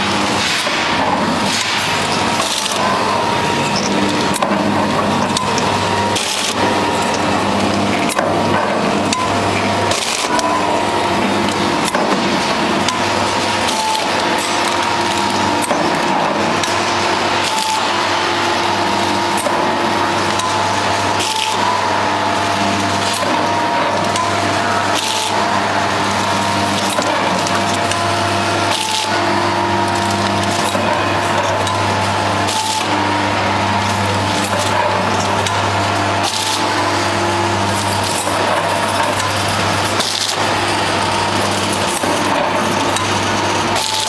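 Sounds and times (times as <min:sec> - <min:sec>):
packing machine hum: 0:00.0 - 0:44.0
sharp machine clattering: 0:26.4 - 0:29.2.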